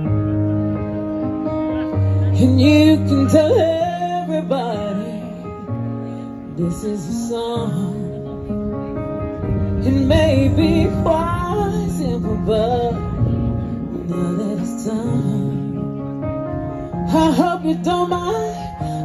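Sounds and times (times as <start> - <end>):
woman singing into microphone: 2.4 - 5.4, 6.5 - 8.4, 9.8 - 16.1, 17.1 - 19.0.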